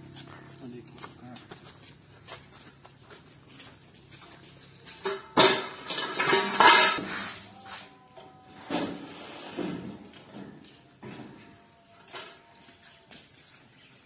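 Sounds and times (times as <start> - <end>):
metal pipes clattering on concrete: 4.8 - 7.5.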